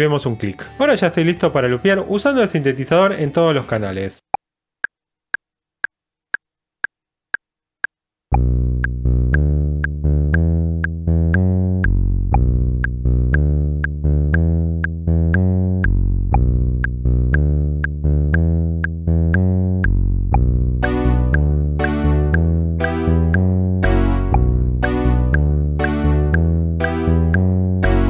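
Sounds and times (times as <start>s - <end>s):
metronome clicking: 5.8s - 28.0s
synthesizer low notes: 8.3s - 28.0s.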